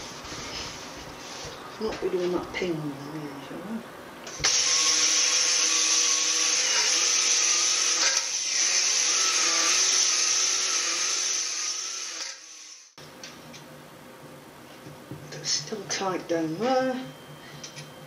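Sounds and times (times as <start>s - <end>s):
drill spinning cylinder hone: 4.4s - 12.9s.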